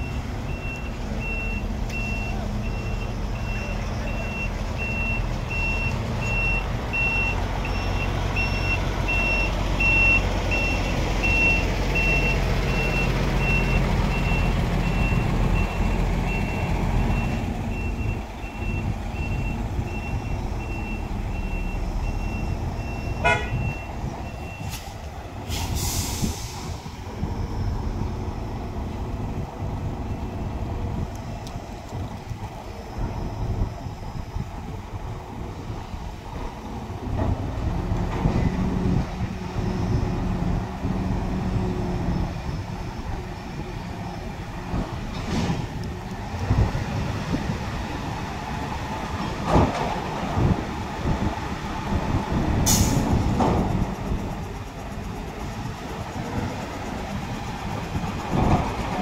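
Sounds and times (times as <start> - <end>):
reverse alarm beeping: 0.0 - 24.7
diesel truck engine running: 0.0 - 59.0
short air hiss: 24.6 - 26.8.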